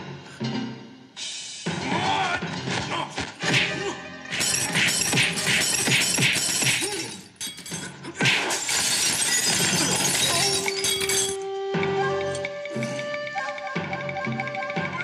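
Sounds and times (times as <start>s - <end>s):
film music score: 0.0s - 5.8s, 10.3s - 15.0s
smashing and breaking crash: 4.4s - 11.4s.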